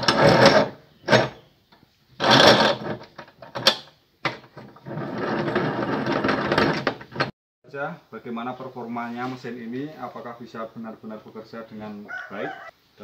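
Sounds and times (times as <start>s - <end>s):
metal vise scraping and clicking: 0.0s - 1.4s.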